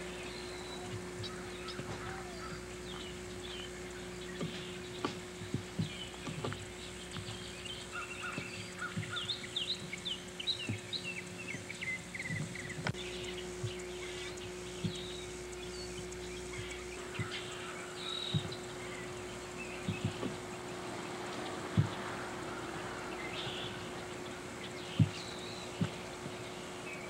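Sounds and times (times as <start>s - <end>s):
small birds chirping: 0.0s - 27.0s
steady faint hum: 0.0s - 27.0s
footsteps on road: 0.1s - 10.0s, 16.5s - 26.5s.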